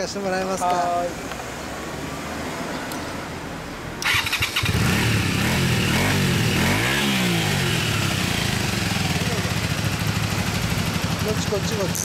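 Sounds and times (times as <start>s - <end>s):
motorcycle engine starting and idling: 4.0s - 12.0s.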